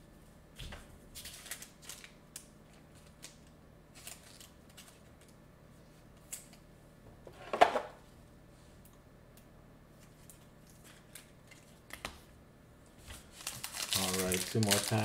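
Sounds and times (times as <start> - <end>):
card rustles: 13.1 - 15.0.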